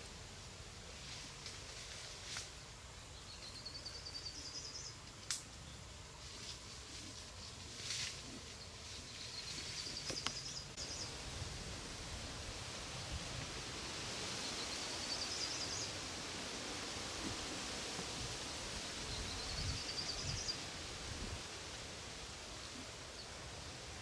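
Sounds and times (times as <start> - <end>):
bird singing: 3.0 - 5.0, 8.5 - 11.1, 14.4 - 15.9, 19.1 - 20.6.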